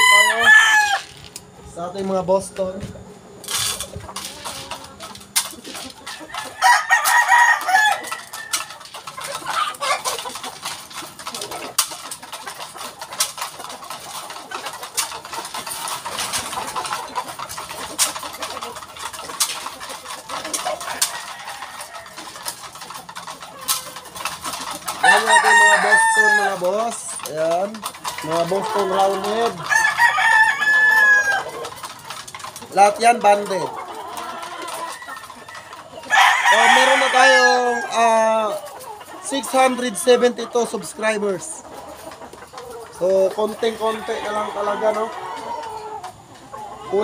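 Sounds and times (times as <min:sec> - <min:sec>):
rooster crowing: 0:00.0 - 0:01.2, 0:06.4 - 0:08.6, 0:25.0 - 0:26.6, 0:29.7 - 0:31.4, 0:36.1 - 0:37.9.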